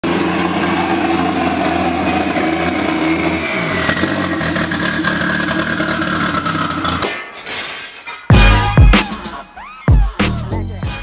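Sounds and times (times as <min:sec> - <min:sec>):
car engine revving: 0:00.0 - 0:07.1.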